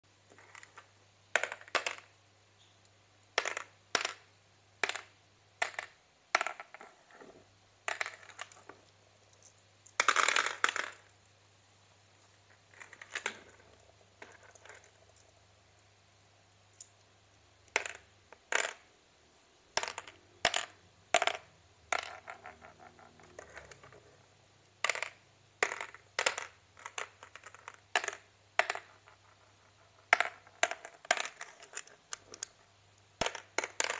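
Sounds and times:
clatter of many marbles: 0.3 - 2.1, 3.4 - 11.2, 12.5 - 15.5, 17.7 - 18.9, 19.7 - 24.2, 24.8 - 33.9
glass marbles clicking: 19.7 - 24.0, 24.8 - 32.6, 33.2 - 33.9.

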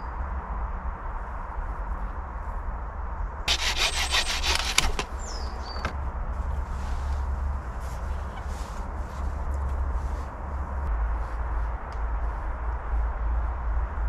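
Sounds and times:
hand saw cutting wood: 3.5 - 5.2.

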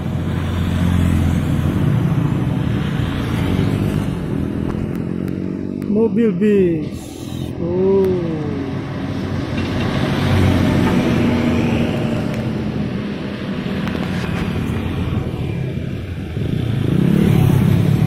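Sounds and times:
motorcycles passing: 0.0 - 18.0
bus driving by: 6.6 - 18.0.

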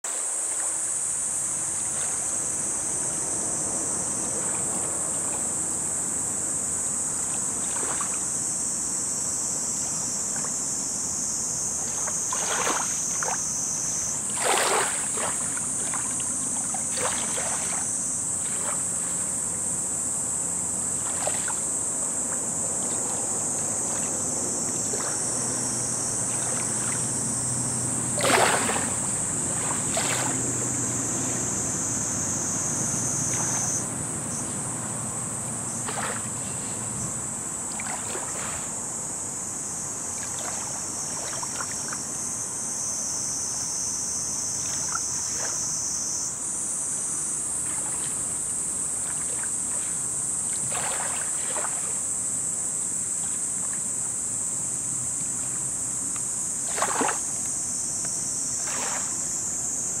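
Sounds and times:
high-pitched hiss: 0.1 - 50.6
waves lapping on pebbles: 11.8 - 19.4, 28.1 - 31.4, 37.7 - 38.8, 47.5 - 52.1, 56.6 - 57.3, 58.6 - 59.2.

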